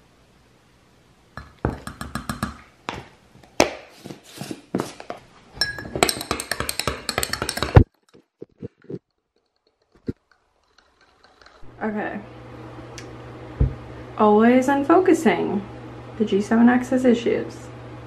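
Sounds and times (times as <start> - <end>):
drink being mixed clinking: 5.6 - 11.7.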